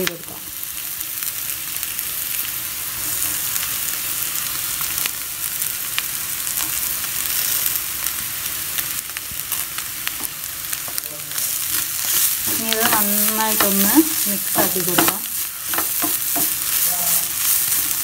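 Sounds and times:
oil crackles: 0:00.0 - 0:18.0
onions sizzling in oil: 0:00.0 - 0:18.0
wooden spatula stirring: 0:10.2 - 0:18.0.

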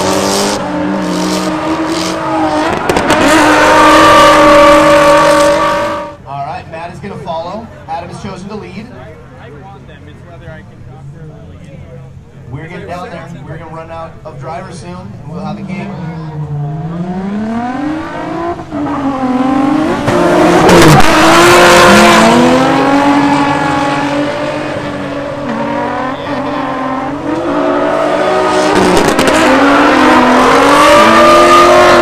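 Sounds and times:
car engines revving: 0:00.0 - 0:32.0
tire squeal: 0:00.5 - 0:06.2, 0:25.4 - 0:32.0.

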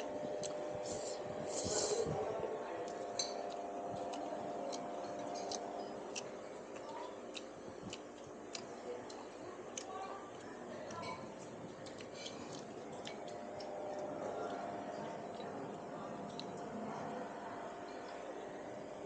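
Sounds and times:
utensils clicking against bowl: 0:02.8 - 0:07.5.

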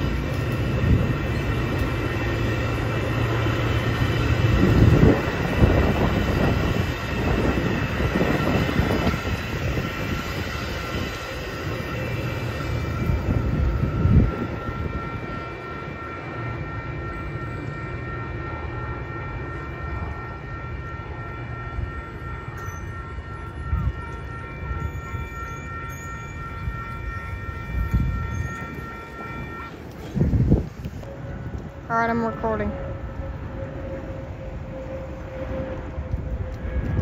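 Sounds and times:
high multi-tone whine: 0:00.0 - 0:37.0
train rumbling: 0:00.0 - 0:37.0.

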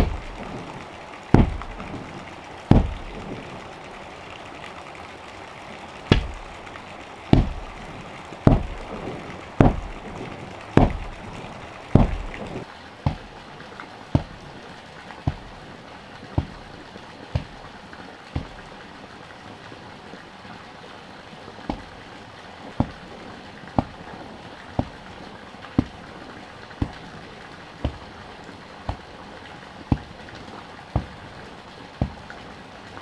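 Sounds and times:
log tamper thudding on earth: 0:00.0 - 0:00.7, 0:01.3 - 0:02.1, 0:02.7 - 0:03.6, 0:06.1 - 0:06.5, 0:07.3 - 0:07.8, 0:08.4 - 0:13.4, 0:14.1 - 0:14.4, 0:15.2 - 0:15.6, 0:17.3 - 0:17.6, 0:18.4 - 0:18.6, 0:21.7 - 0:21.9, 0:22.8 - 0:23.0, 0:23.8 - 0:24.1, 0:24.8 - 0:25.0, 0:25.8 - 0:26.1, 0:27.8 - 0:28.2, 0:28.9 - 0:29.1, 0:29.9 - 0:30.1, 0:30.9 - 0:31.3, 0:32.0 - 0:32.3.

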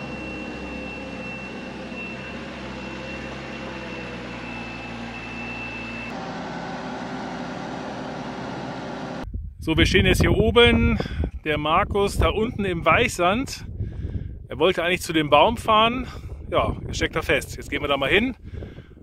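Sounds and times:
faint high whine: 0:00.0 - 0:06.2
truck engine running: 0:00.0 - 0:09.3.

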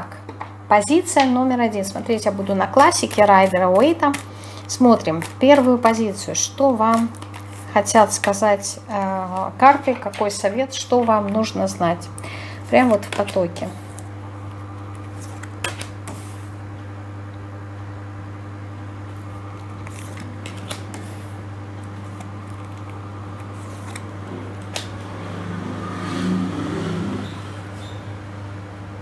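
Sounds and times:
low electrical hum: 0:00.0 - 0:29.0
cards snapping and sliding: 0:14.9 - 0:16.4, 0:19.2 - 0:25.0.

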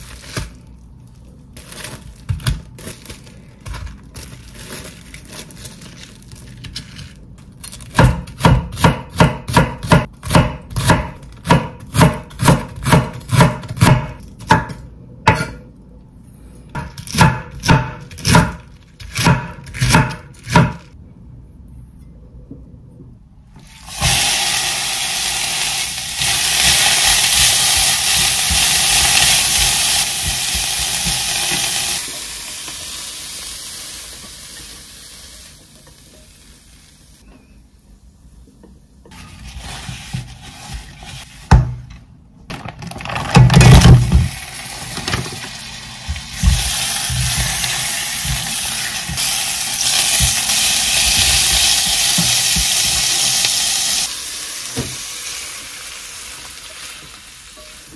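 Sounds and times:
pork sizzling in a pan: 0:23.7 - 0:37.3, 0:43.6 - 0:57.9
cabbage sizzling in a frying pan: 0:23.8 - 0:37.2, 0:44.3 - 0:57.9.

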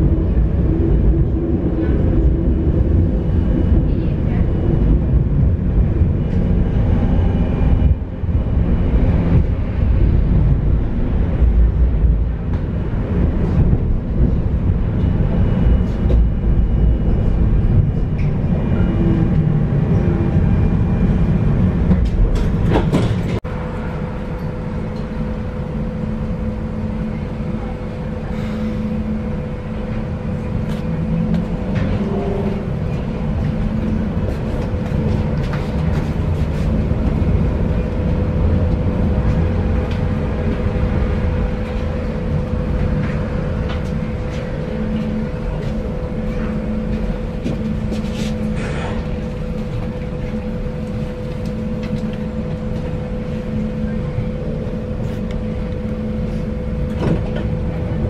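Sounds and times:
tram rumbling on rails: 0:00.0 - 0:58.0
track clatter: 0:21.8 - 0:23.4.

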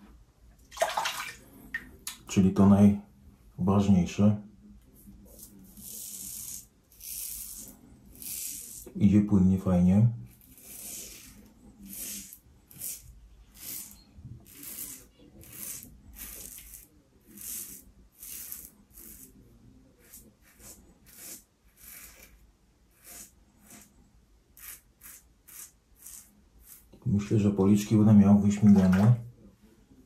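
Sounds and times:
razor scraping stubble: 0:05.2 - 0:08.9, 0:10.3 - 0:19.4, 0:20.0 - 0:24.0, 0:24.6 - 0:27.0.

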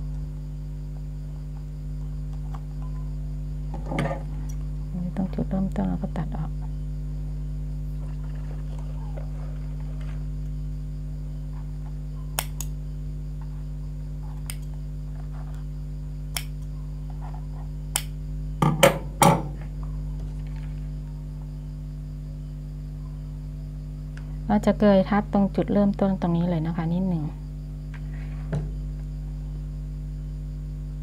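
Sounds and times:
steady electrical hum: 0:00.0 - 0:31.0
scissors snipping: 0:12.4 - 0:12.7, 0:14.4 - 0:14.7, 0:16.3 - 0:16.7, 0:17.9 - 0:18.1.

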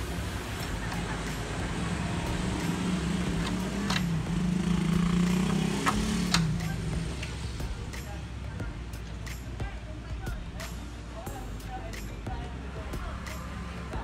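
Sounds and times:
motor vehicle engine humming: 0:00.0 - 0:14.0.

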